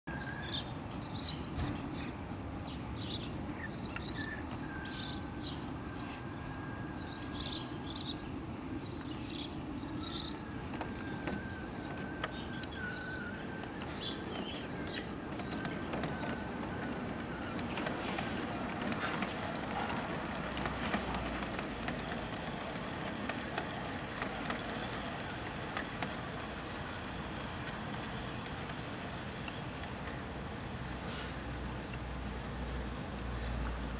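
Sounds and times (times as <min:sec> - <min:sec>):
birds chirping: 0:00.1 - 0:33.7
model train running rumble: 0:04.1 - 0:33.9
wheel clicks clattering: 0:10.2 - 0:30.2.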